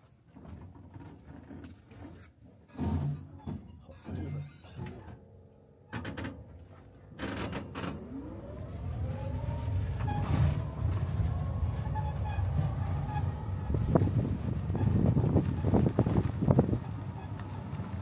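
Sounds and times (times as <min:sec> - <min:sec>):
bus motor whine and rumble: 0:07.1 - 0:18.0.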